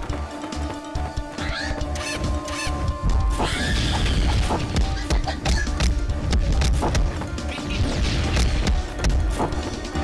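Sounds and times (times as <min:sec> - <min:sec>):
cartoon background music: 0:00.0 - 0:10.0.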